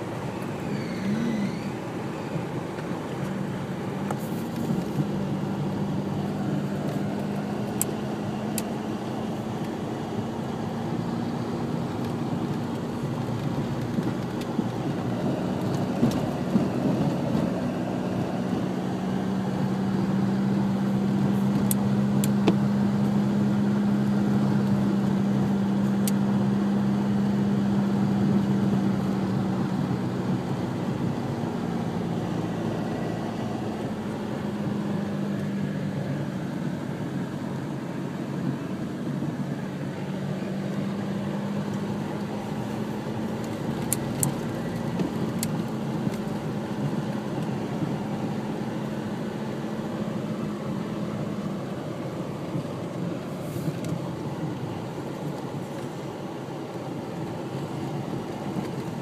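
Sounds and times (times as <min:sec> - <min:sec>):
car engine humming: 0:00.0 - 0:59.0
tyre and road noise: 0:00.0 - 0:59.0.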